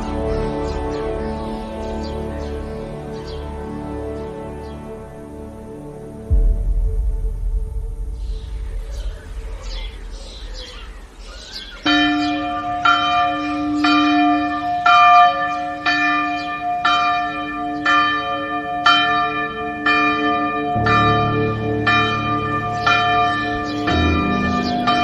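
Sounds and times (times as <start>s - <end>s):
steady low note: 5.8s - 12.7s
deeper hum: 6.3s - 11.9s.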